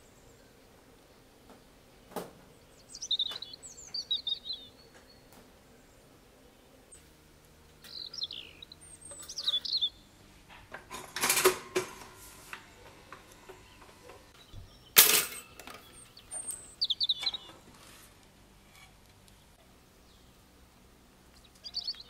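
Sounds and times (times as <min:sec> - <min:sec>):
birdsong chirps: 0:00.0 - 0:10.8, 0:12.0 - 0:22.0
toaster clicks and clatters: 0:10.6 - 0:14.2, 0:15.0 - 0:16.6.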